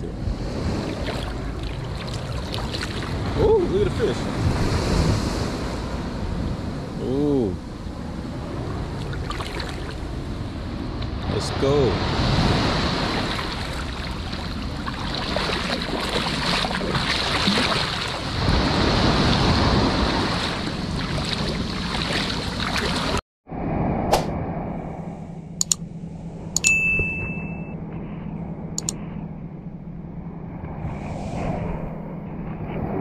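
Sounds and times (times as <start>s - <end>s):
small waves breaking: 0.0s - 7.0s, 8.1s - 23.2s
seaside ambience: 0.0s - 33.0s
sharp clicks: 25.6s - 25.8s, 28.8s - 29.0s
short ding: 26.6s - 27.8s.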